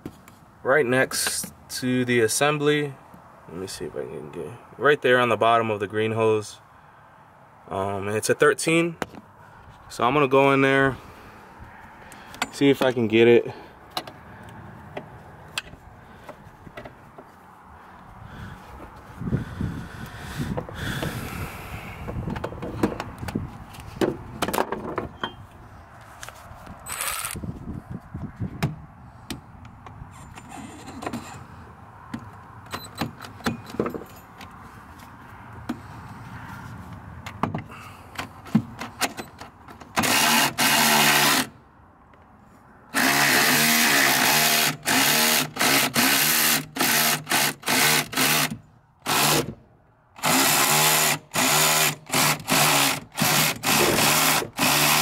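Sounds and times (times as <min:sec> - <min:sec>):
electric ratchet motor running: 0:26.9 - 0:27.4, 0:40.0 - 0:41.5, 0:43.0 - 0:49.5, 0:50.2 - 0:55.0.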